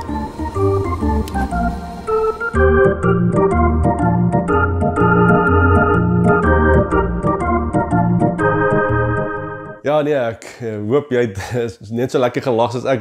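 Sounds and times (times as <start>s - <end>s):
organ-style keyboard music: 0.0s - 9.8s.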